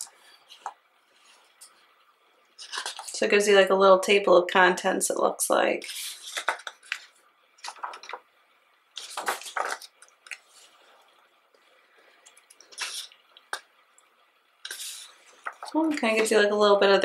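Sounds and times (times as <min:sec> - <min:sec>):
pages turning rustle: 0:02.6 - 0:03.2, 0:05.8 - 0:08.2, 0:09.0 - 0:10.8, 0:12.6 - 0:13.1, 0:14.7 - 0:16.3.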